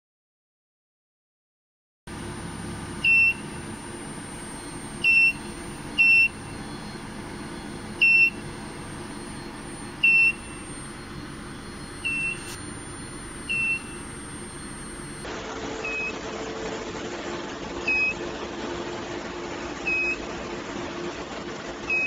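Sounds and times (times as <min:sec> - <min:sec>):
thin high whine: 0:02.1 - 0:16.1
steady machine hum: 0:02.1 - 0:22.0
short electronic beeps: 0:02.6 - 0:15.3.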